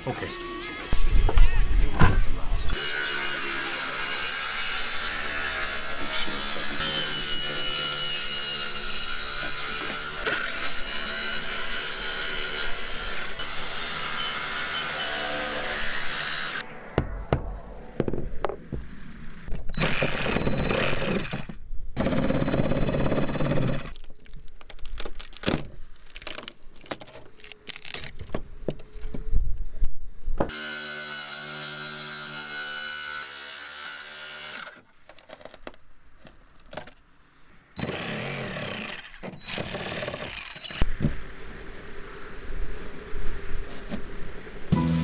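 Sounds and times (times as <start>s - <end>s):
circular saw cutting: 2.7s - 17.2s
wood knocking and cracking: 24.0s - 28.9s, 35.1s - 37.0s.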